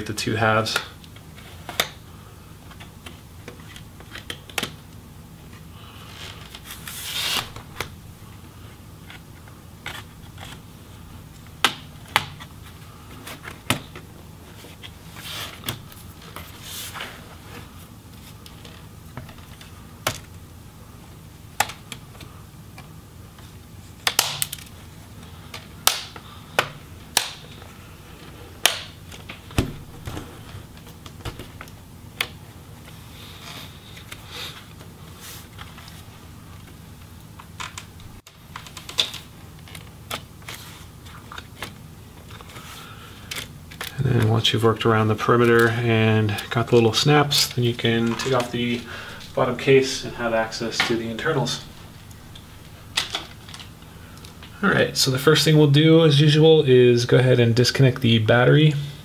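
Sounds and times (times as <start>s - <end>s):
plastic clips snapping loose: 25.5s - 27.5s.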